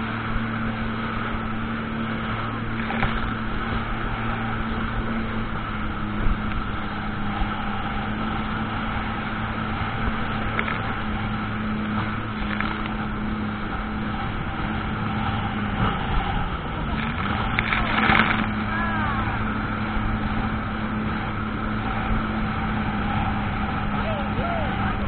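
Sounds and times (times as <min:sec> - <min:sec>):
jet ski engine running: 0:00.0 - 0:25.0
rushing water noise: 0:00.0 - 0:25.0.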